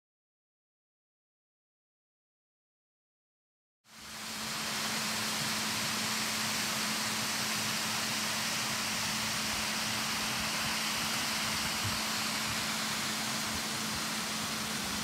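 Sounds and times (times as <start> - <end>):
water rushing over dam: 4.1 - 15.0.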